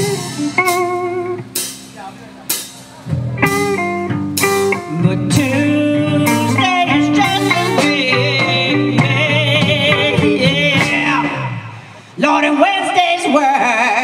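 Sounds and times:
blues-rock band playing: 0.0 - 14.0
woman singing: 4.8 - 14.0.

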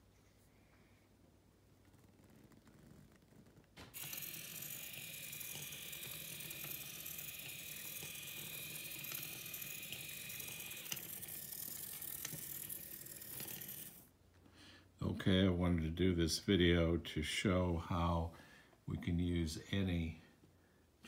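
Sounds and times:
small drive motors whirring: 3.9 - 14.1.

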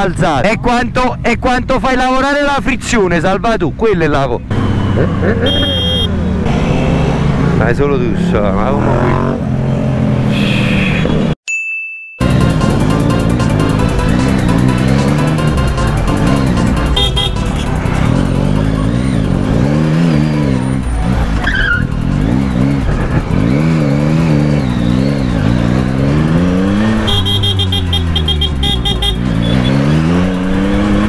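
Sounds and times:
motorcycle engine revving: 4.5 - 10.5, 12.2 - 31.0.

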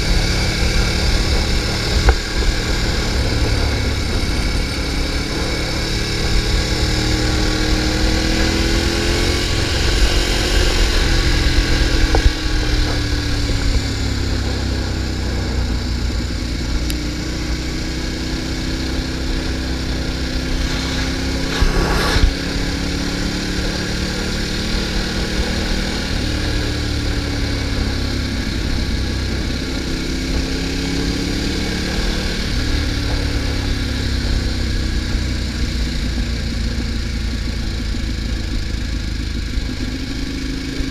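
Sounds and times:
motorcycle engine revving: 0.0 - 40.9
loud whoosh: 19.2 - 25.2
wind rushing: 19.5 - 24.1.

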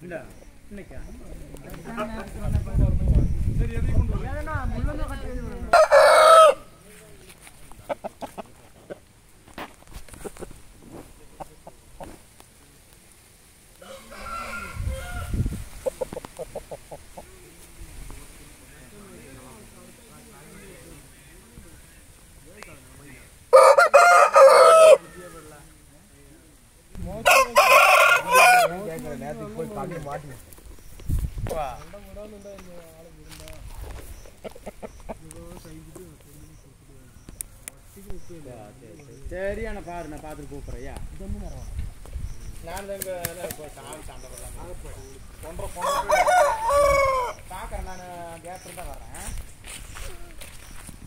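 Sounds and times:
rooster crowing: 5.7 - 6.7, 13.8 - 15.5, 23.5 - 25.6, 27.2 - 28.9, 45.7 - 47.5.

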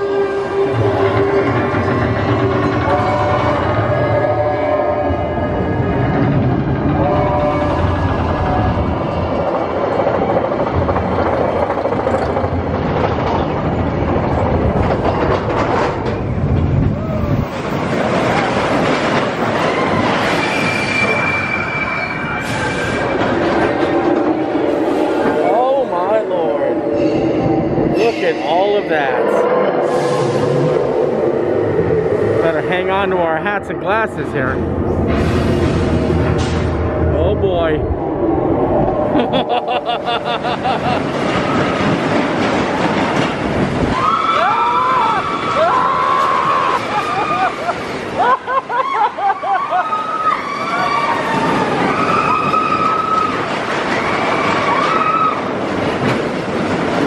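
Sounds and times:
roller coaster wheels rumbling: 0.0 - 57.0
high wheel squeal: 19.4 - 23.4
high gliding squeals: 19.5 - 34.6
rushing air: 22.4 - 44.2.

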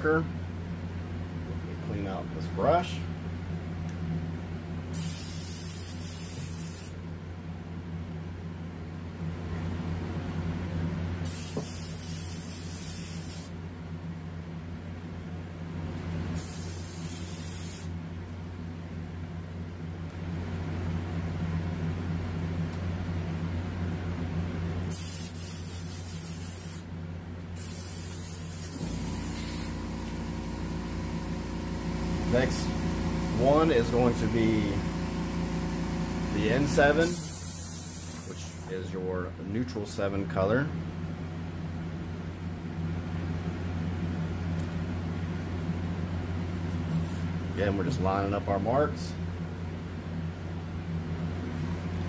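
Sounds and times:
steady low hum: 0.0 - 52.0
airbrush spraying hiss: 4.9 - 7.0, 11.2 - 13.6, 16.4 - 18.0, 24.9 - 26.9, 27.6 - 29.8, 36.9 - 38.7.

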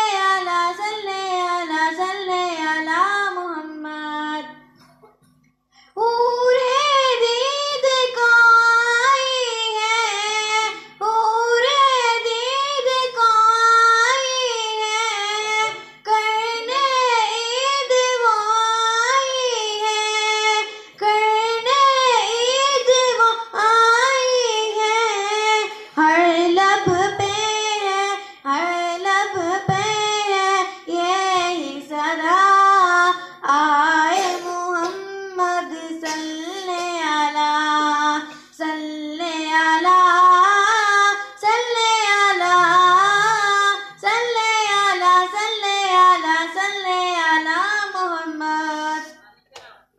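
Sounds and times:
girl singing unaccompanied: 0.0 - 4.8, 6.0 - 49.2
short breaths: 38.2 - 38.6.

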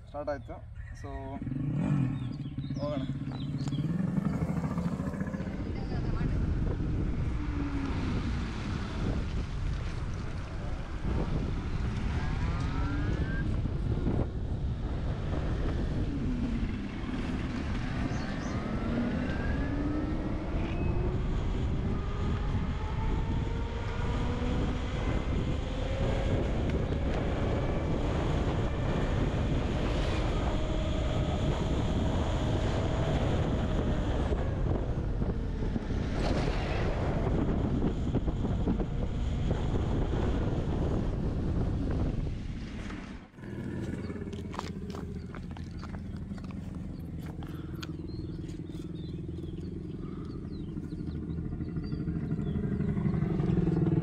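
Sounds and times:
wind rumble on microphone: 0.0 - 54.0
electric motorcycle whine: 1.2 - 54.0.

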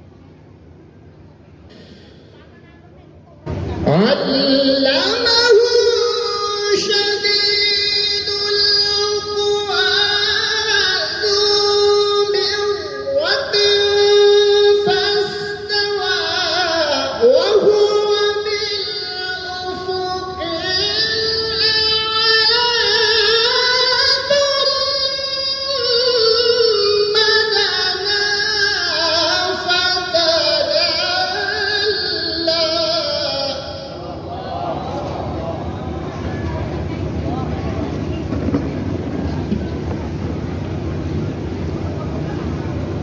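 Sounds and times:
man reciting in melodic style: 3.9 - 35.0.

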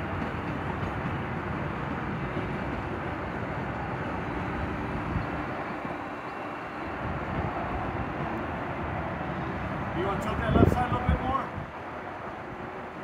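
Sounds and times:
city noise rumble: 0.0 - 13.0
wind on microphone: 6.8 - 12.7.

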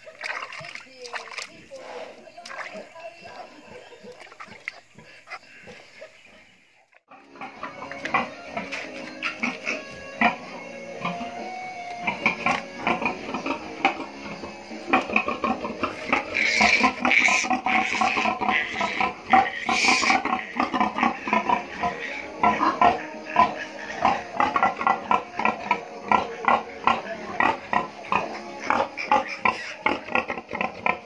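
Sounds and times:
piglet squealing and grunting: 14.9 - 31.0.

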